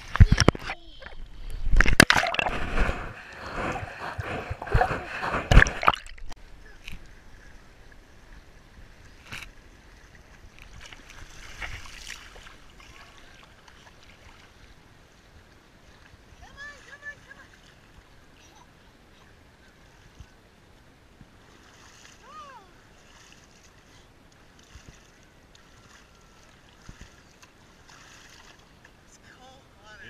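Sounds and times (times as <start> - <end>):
water splashing against camera: 0.0 - 7.1
shallow water washing: 0.0 - 20.5, 21.2 - 30.0.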